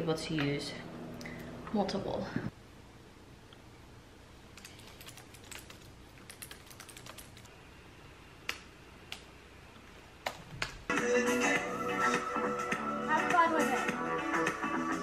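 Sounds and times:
music: 10.9 - 15.0.

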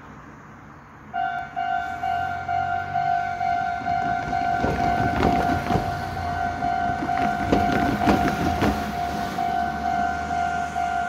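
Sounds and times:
level crossing warning bell: 1.2 - 11.0
train wheels clacking over rails: 2.8 - 10.8.

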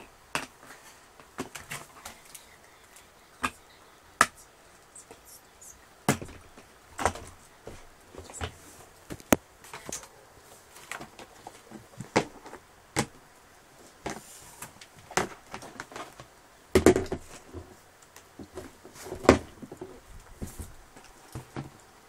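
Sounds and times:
plastic parts clicking and knocking: 15.0 - 17.7.

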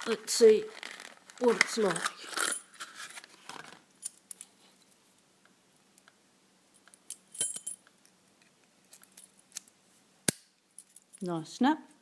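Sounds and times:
padlock and keys jingling: 6.8 - 7.9, 10.7 - 11.3.

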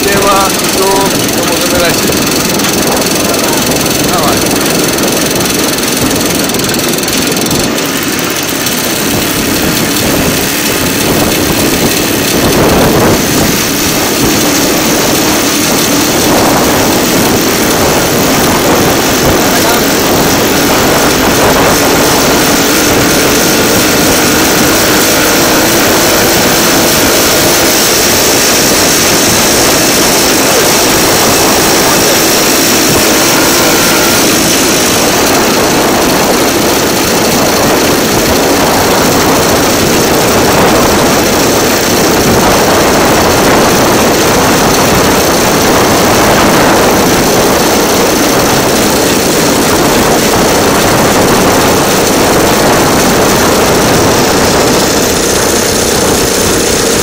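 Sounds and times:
rail running noise: 0.0 - 57.0
rail vehicle engine running: 0.0 - 57.0.

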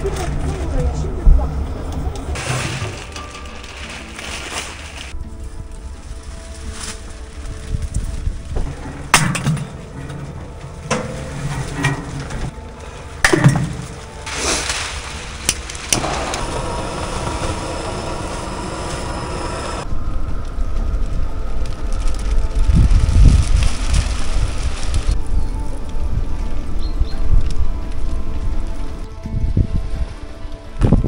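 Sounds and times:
gas torch hissing: 15.9 - 19.9.

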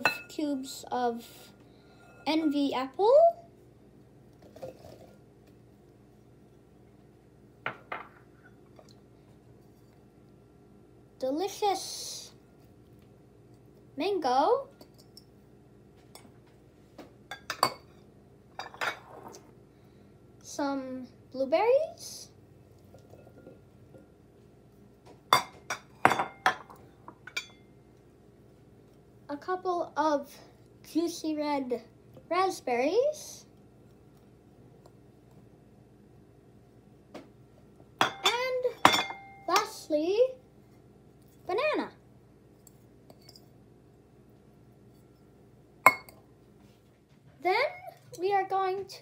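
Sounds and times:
ceramic bowl clinking against glass: 0.0 - 0.4, 38.0 - 39.7, 45.9 - 46.2
dishware clinking: 0.0 - 0.4, 25.3 - 27.6, 38.0 - 39.7
faint steady hum: 0.0 - 49.0.

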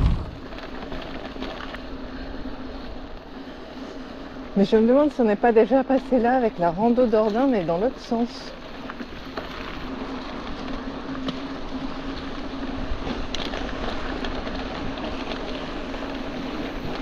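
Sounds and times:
tyre and wind noise: 0.0 - 3.1
droning hum: 0.0 - 17.0.

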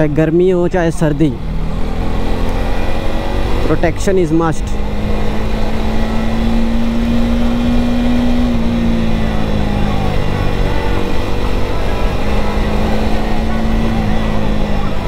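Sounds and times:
motorcycle engine running: 0.0 - 15.0
road and wind noise: 0.0 - 15.0.

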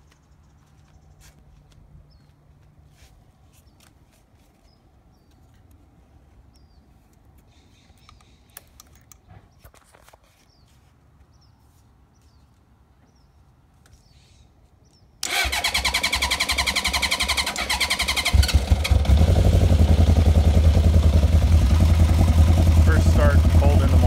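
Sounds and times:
birds chirping: 0.0 - 2.6, 4.6 - 15.3, 19.8 - 24.0
motorcycle engine starting: 15.2 - 24.0.

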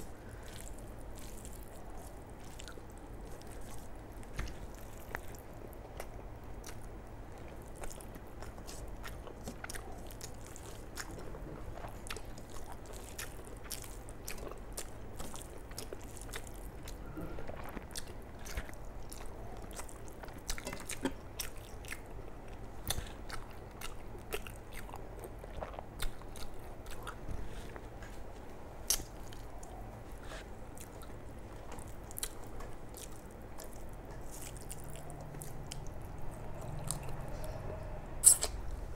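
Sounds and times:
wet chewing mouth clicks: 38.2 - 38.6.

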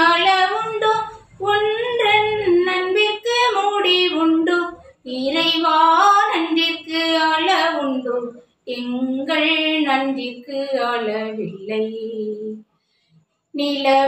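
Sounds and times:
woman singing a hymn: 0.0 - 12.6, 13.6 - 14.0.

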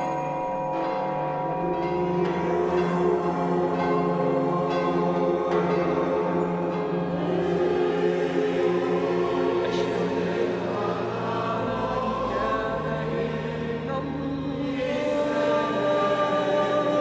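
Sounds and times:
choir singing held chords: 0.0 - 17.0.

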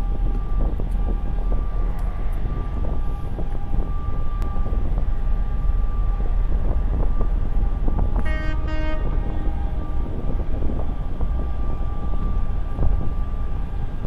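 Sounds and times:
container ship low rumble: 0.0 - 14.0
wind buffeting: 0.0 - 14.0
short ship horn toot: 7.8 - 13.5.

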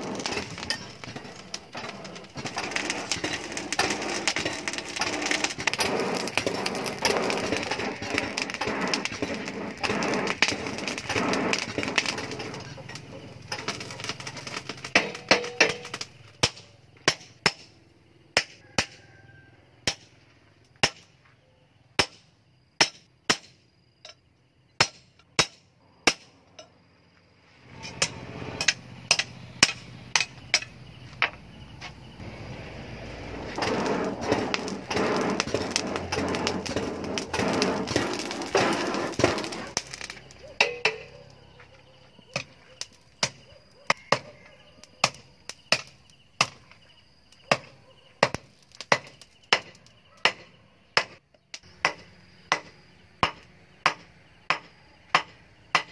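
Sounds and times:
hammer striking steel on anvil: 27.8 - 31.3.

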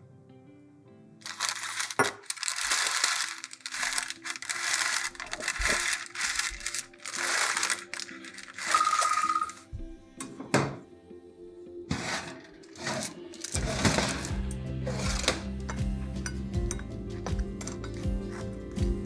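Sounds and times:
soft background music: 0.0 - 19.0
parchment paper rustling: 1.2 - 9.6, 12.6 - 15.4.

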